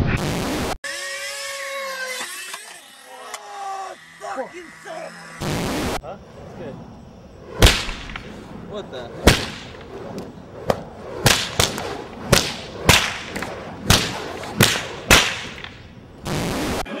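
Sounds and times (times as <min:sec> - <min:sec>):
fire whip cracks: 0:07.4 - 0:16.9.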